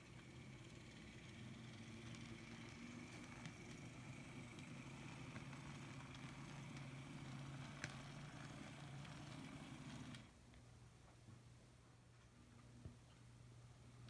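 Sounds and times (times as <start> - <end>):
model train motor hum: 0.0 - 10.3
wheels ticking over rail: 0.0 - 10.3.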